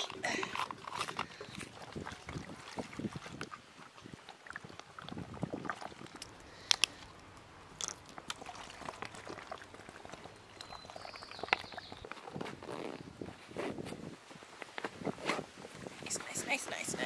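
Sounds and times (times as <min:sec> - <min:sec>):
plastic bottle crinkling: 0:00.0 - 0:02.6
water pouring: 0:00.0 - 0:12.0.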